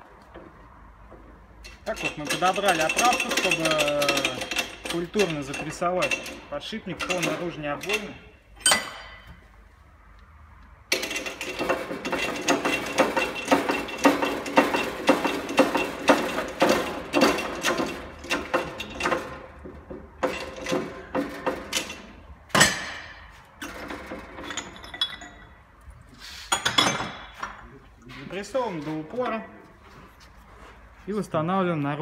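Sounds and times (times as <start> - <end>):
shop press metallic clicks and knocks: 1.2 - 9.4, 10.9 - 25.5.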